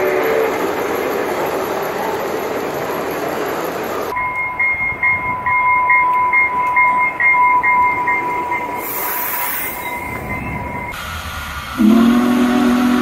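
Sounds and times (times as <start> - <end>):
railroad warning bell ringing: 0.0 - 11.0
model train running: 0.0 - 13.0
air hiss: 8.8 - 13.0.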